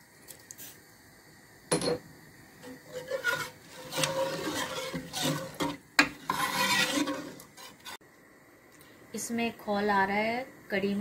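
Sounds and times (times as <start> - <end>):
ladle scraping pot: 2.6 - 8.0.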